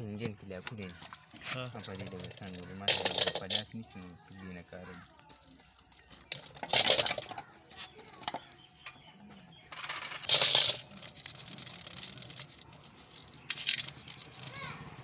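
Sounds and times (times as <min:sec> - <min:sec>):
metal parts clinking in metal basin: 0:00.7 - 0:03.8, 0:04.8 - 0:07.5, 0:09.7 - 0:14.5.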